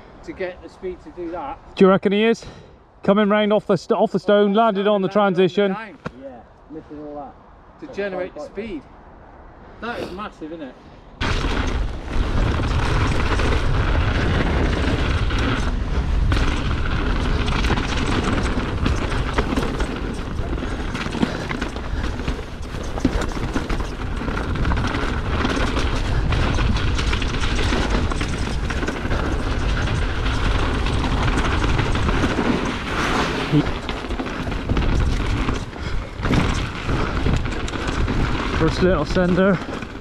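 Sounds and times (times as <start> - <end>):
wind buffeting microphone: 11.1 - 40.0
bike rattles and knocks: 11.2 - 40.0
tyres crunching over stones: 11.2 - 40.0.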